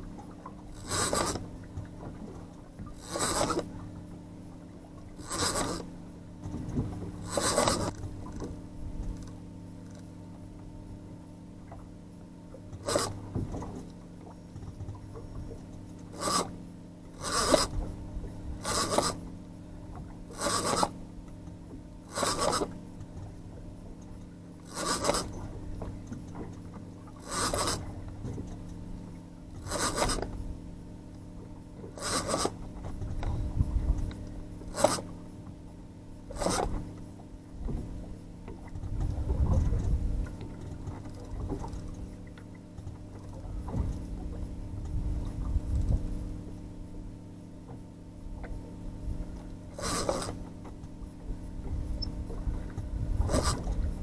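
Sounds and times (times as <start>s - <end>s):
fishing reel rasping: 0.8s - 1.4s, 3.0s - 3.7s, 5.2s - 5.9s, 7.2s - 8.4s, 12.8s - 13.2s, 16.1s - 16.6s, 17.2s - 17.8s, 18.6s - 19.3s, 20.3s - 21.0s, 22.1s - 22.8s, 24.6s - 25.4s, 27.2s - 27.9s, 29.6s - 30.3s, 32.0s - 32.6s, 34.7s - 35.1s, 36.3s - 36.8s, 49.7s - 50.4s, 53.2s - 53.8s.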